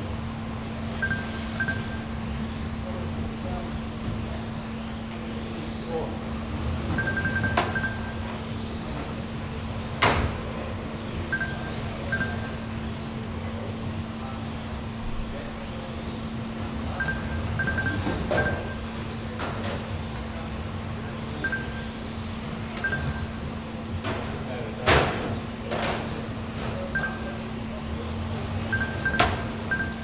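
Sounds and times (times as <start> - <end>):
short high electronic beeps: 1.0 - 2.1, 7.0 - 8.2, 11.4 - 12.6, 17.0 - 18.8, 21.4 - 22.0, 27.0 - 27.4, 28.7 - 30.0.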